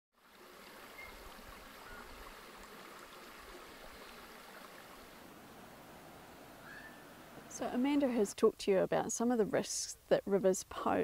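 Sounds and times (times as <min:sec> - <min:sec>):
river flowing: 0:00.2 - 0:08.4.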